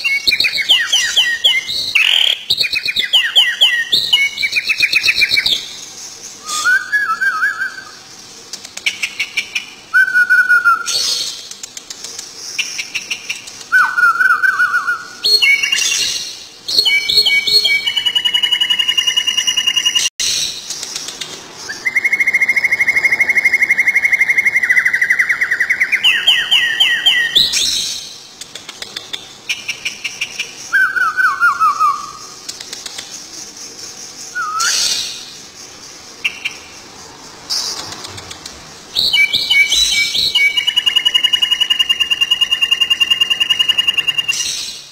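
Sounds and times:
bird whistling calls: 6.4s - 8.0s, 13.7s - 20.5s, 21.6s - 28.0s, 30.7s - 32.4s, 34.3s - 35.2s, 39.0s - 44.8s.

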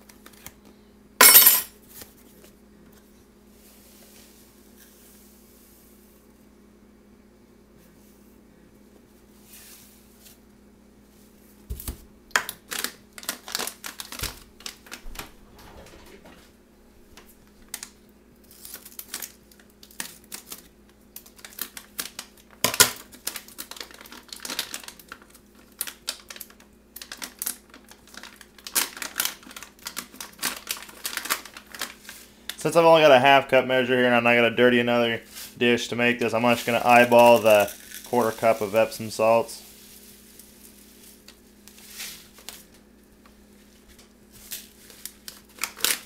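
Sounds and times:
paper bag crinkling: 12.6s - 16.5s, 17.2s - 32.7s, 36.2s - 42.8s, 43.5s - 46.0s.

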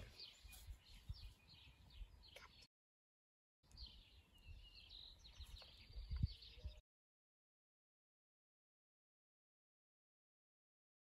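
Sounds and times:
faint bird chirps: 0.0s - 2.7s, 3.7s - 6.8s.

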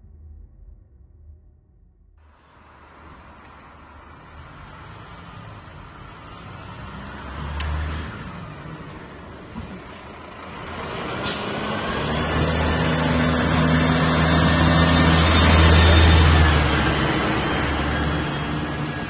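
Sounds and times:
diesel engine accelerating: 2.2s - 19.0s
short hiss: 11.2s - 11.6s.

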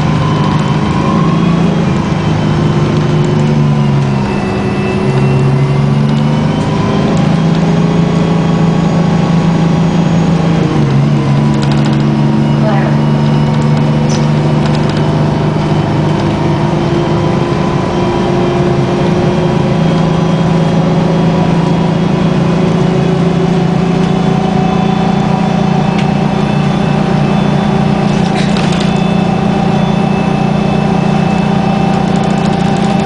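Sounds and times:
diesel bus engine drone: 0.0s - 33.0s.

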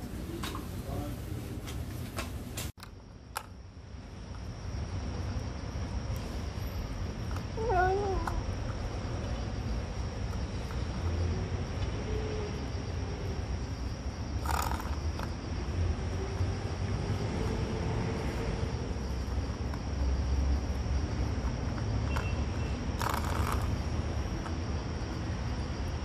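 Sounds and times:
cat crunching dry food: 14.4s - 15.2s, 23.0s - 23.6s.

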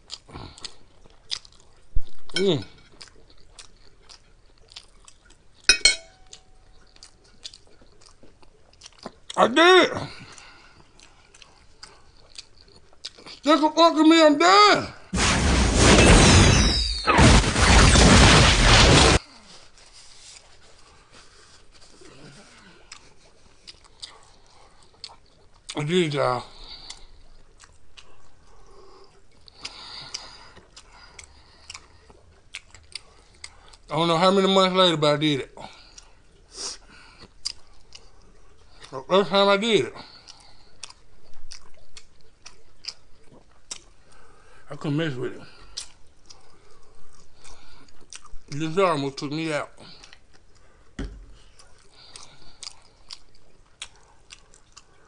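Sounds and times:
soft chewing and mouth clicks: 0.0s - 9.4s, 10.1s - 13.5s, 19.3s - 33.9s, 35.5s - 39.1s, 40.0s - 55.0s
metal fork clinking on a plate: 5.7s - 6.4s.

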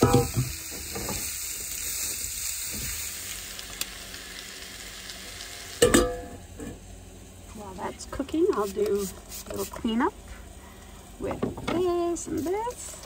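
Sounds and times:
metal clank: 0.0s - 1.2s, 5.8s - 6.8s
vegetables sizzling in pan: 0.0s - 13.0s.

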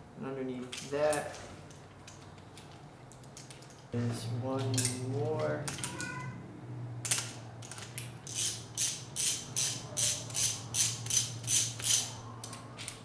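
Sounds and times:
ratchet wrench clicking: 7.0s - 13.0s.

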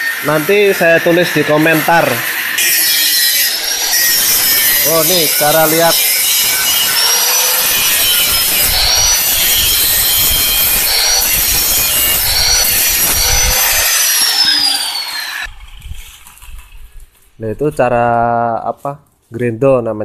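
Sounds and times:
angle grinder grinding steel: 0.0s - 16.3s.

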